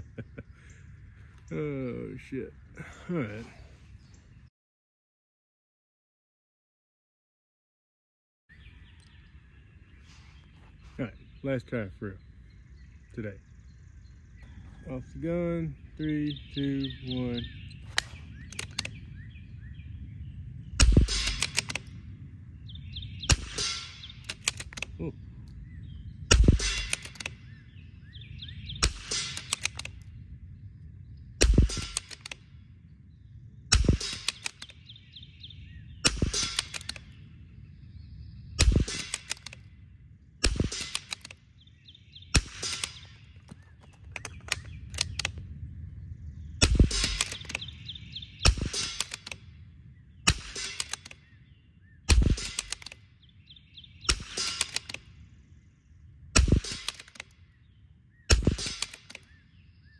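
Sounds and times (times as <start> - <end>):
rifle gunshots: 20.8 - 21.9, 23.2 - 24.9, 26.3 - 27.4, 31.4 - 32.4, 38.6 - 39.6, 40.4 - 41.4, 42.3 - 43.3, 46.6 - 47.8, 50.3 - 51.2, 52.1 - 52.9, 54.0 - 55.1, 56.4 - 57.4, 58.3 - 59.2.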